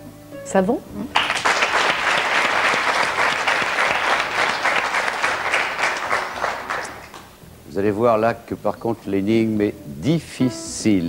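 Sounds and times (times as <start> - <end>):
audience applauding: 1.1 - 7.4.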